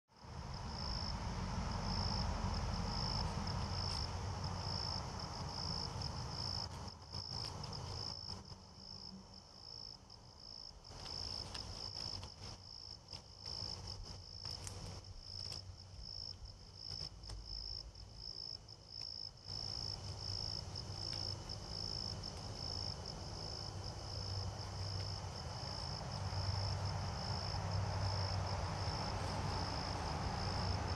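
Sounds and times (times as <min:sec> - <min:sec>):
insects chirping: 0:00.2 - 0:30.9
clicks and rustles: 0:05.9 - 0:08.6, 0:10.9 - 0:17.8.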